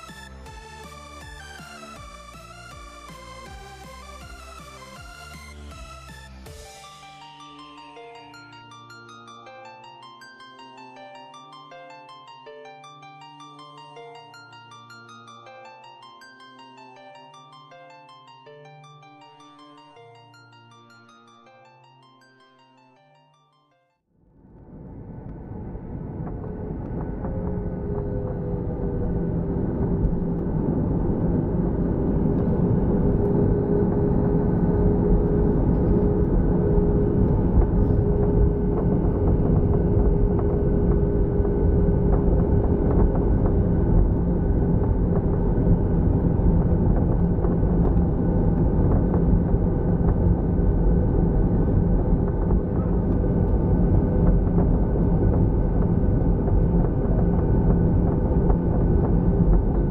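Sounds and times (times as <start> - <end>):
constant low hum: 24.4 - 59.9
jet engine cabin rumble: 24.5 - 59.9.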